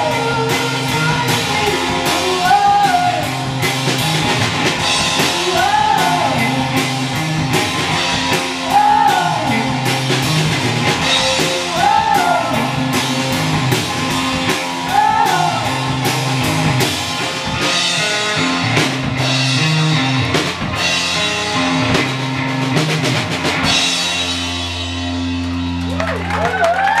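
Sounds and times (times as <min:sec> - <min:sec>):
drum kit beat: 0:00.0 - 0:26.0
electric guitar: 0:00.0 - 0:27.0.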